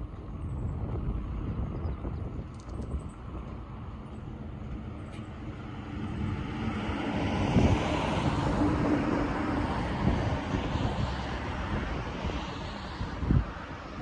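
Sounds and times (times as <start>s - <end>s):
vehicle passing: 3.5s - 14.0s.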